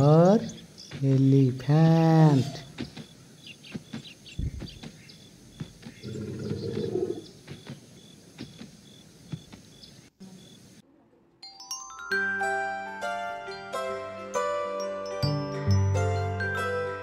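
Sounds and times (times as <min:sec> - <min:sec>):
background hiss: 0:00.0 - 0:11.4
low rough animal call: 0:06.0 - 0:07.3
chiming bell jingle: 0:11.5 - 0:17.0.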